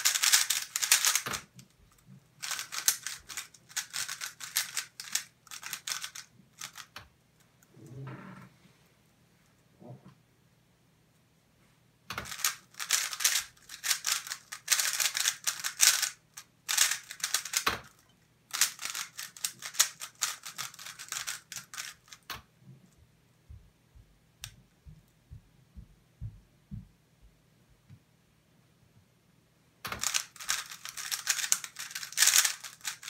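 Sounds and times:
puzzle cube plastic clicks rattling: 0:00.0 - 0:01.7, 0:02.4 - 0:07.0, 0:12.1 - 0:22.3, 0:29.9 - 0:33.0.

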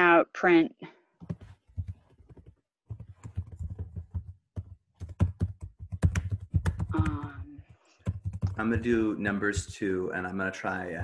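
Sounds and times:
typing on keyboard: 0:01.2 - 0:10.0.

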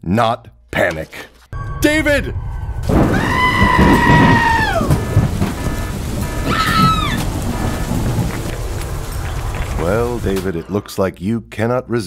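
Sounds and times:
thunder rumbling: 0:01.6 - 0:10.7
falling wail: 0:02.6 - 0:08.0
rain: 0:02.9 - 0:10.7.

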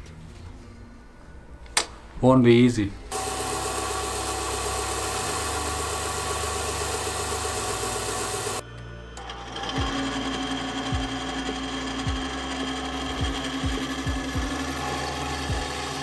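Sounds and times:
bandsaw cutting wood: 0:03.1 - 0:08.6, 0:09.2 - 0:16.0
belt sander running: 0:03.1 - 0:08.6, 0:09.2 - 0:16.0.

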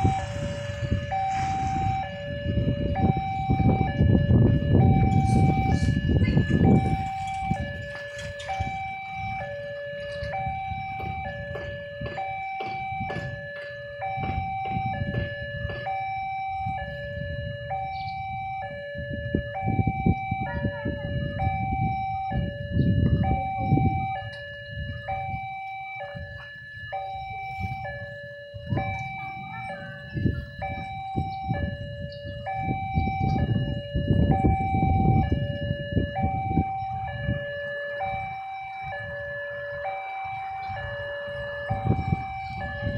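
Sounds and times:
low rumble: 0:00.0 - 0:07.5
low rumble of idling engines: 0:00.0 - 0:18.4
level crossing two-tone alarm: 0:00.0 - 0:42.9.

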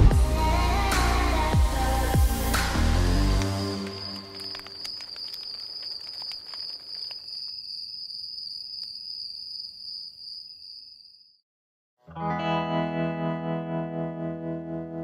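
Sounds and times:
campfire crackling and popping: 0:02.3 - 0:07.6
lower insect trill: 0:02.3 - 0:11.4
insects trilling: 0:02.8 - 0:11.4.

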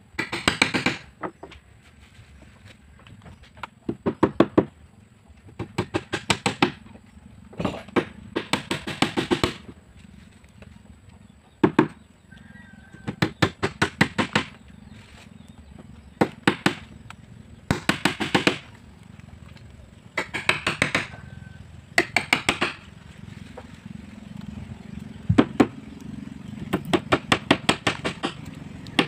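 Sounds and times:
hammer driving nails into wood: 0:00.2 - 0:01.1, 0:07.7 - 0:09.6, 0:17.7 - 0:18.6, 0:20.2 - 0:21.2, 0:22.0 - 0:22.9, 0:26.7 - 0:28.4.

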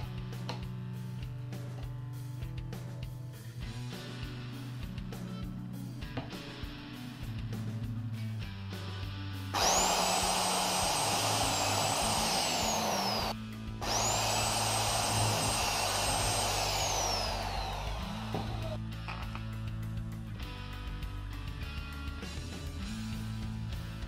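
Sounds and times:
background music: 0:00.0 - 0:24.0
electric drill whining: 0:09.6 - 0:18.8.

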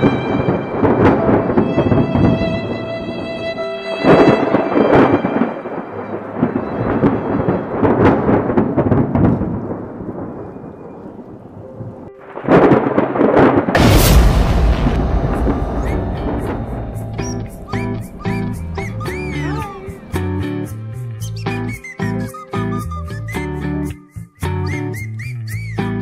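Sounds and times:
thunder cracks and rumbles: 0:00.0 - 0:02.8, 0:04.1 - 0:11.6, 0:12.3 - 0:20.8
rain: 0:00.0 - 0:20.9.

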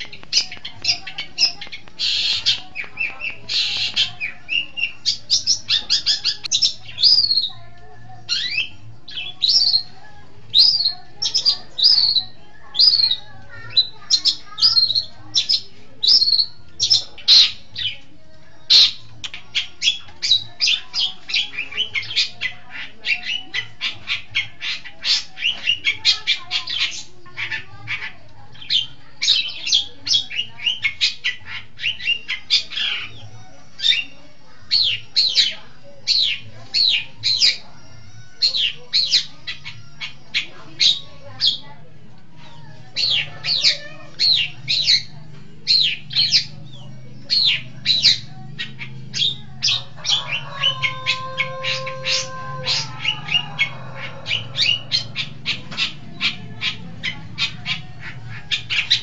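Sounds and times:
shrike singing: 0:00.0 - 0:28.0, 0:42.5 - 0:59.0.

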